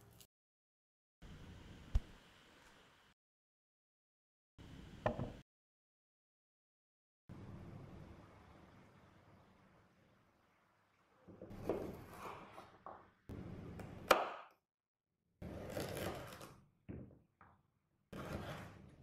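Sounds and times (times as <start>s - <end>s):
knife knocking on wooden board: 5.1s - 5.4s
knife cutting carrot: 15.4s - 16.6s.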